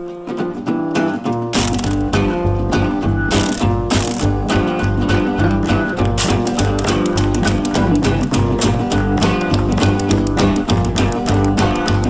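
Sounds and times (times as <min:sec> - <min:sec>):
guitar instrumental with beat: 0:00.0 - 0:12.0.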